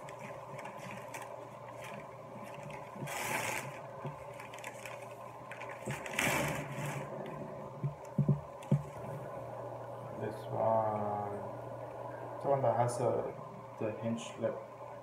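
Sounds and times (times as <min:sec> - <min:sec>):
newspaper crinkling and rustling: 0:00.0 - 0:07.4
steady low hum: 0:00.0 - 0:15.0.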